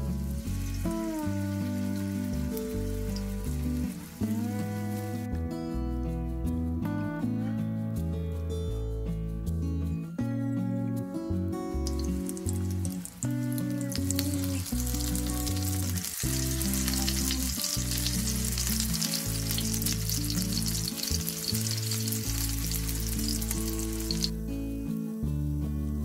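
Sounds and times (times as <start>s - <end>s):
fritters sizzling in oil: 0.0s - 5.3s, 11.8s - 24.4s
background music with low notes: 0.0s - 26.0s.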